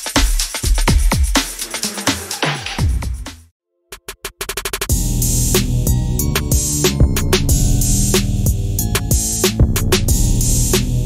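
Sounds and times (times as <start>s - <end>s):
drum-machine beat: 0.0s - 11.0s
electronic music: 1.3s - 11.0s
sustained bass: 4.9s - 11.0s.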